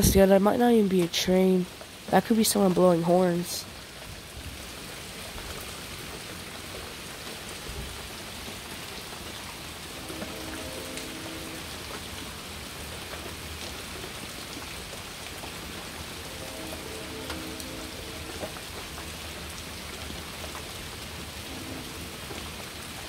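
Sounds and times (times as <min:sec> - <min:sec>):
rain hiss: 0:00.0 - 0:23.0
distant train horn: 0:09.8 - 0:12.5, 0:16.1 - 0:19.7, 0:21.4 - 0:22.7.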